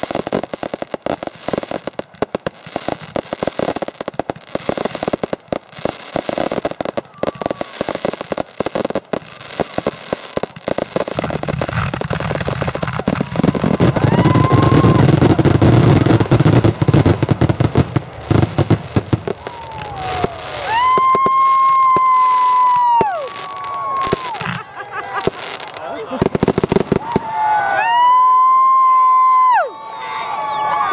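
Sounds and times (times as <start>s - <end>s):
fireworks bangs: 0.0s - 29.3s
fireworks crackling and popping: 0.0s - 29.7s
whistling fireworks: 0.0s - 30.9s.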